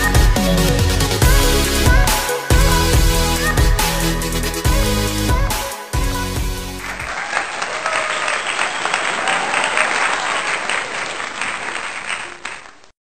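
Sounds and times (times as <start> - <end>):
crowd applauding: 6.8 - 12.9.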